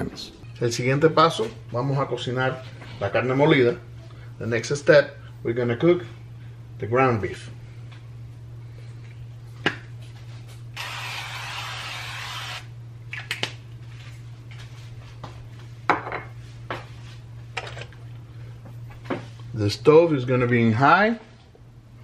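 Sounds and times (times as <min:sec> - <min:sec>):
cooking spray hissing: 0:10.8 - 0:12.7.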